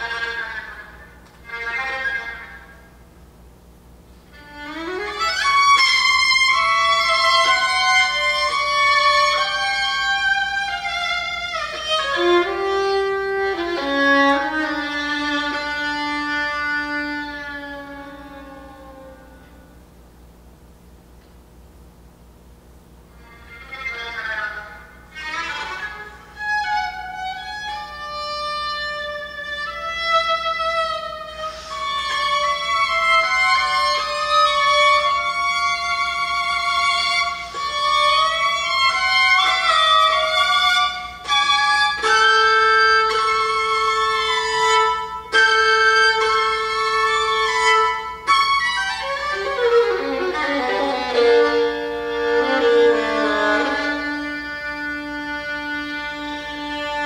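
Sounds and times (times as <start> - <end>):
solo violin melody: 0.0 - 2.9, 4.3 - 19.8, 23.2 - 57.0.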